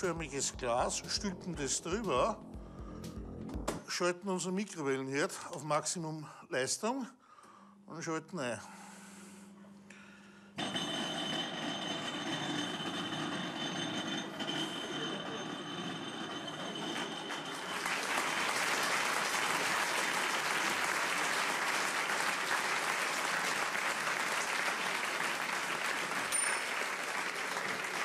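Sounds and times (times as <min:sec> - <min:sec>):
audience applause: 0:16.8 - 0:28.0.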